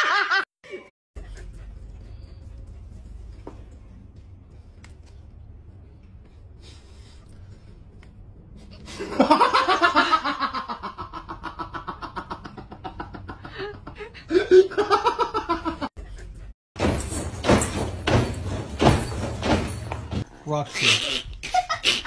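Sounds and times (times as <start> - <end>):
person laughing: 8.8 - 15.9, 20.7 - 22.0.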